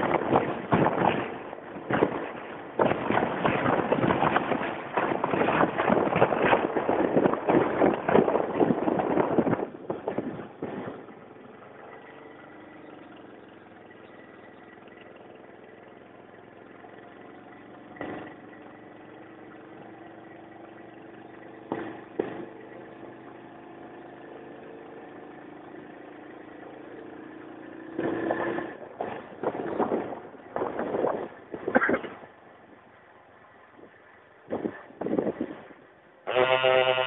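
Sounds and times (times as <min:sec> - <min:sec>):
vehicle engine humming: 0:00.0 - 0:37.0.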